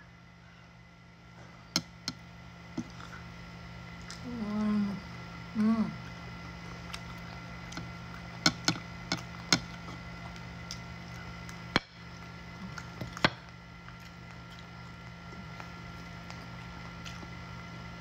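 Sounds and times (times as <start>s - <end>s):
steady low hum: 0.0s - 18.0s
crisp skin cracking and crunching: 6.7s - 17.7s.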